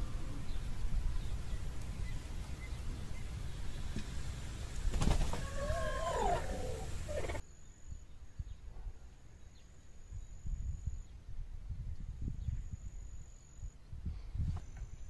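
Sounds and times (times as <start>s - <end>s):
low outdoor rumble: 0.0s - 7.4s
farm animal calling: 5.4s - 7.4s.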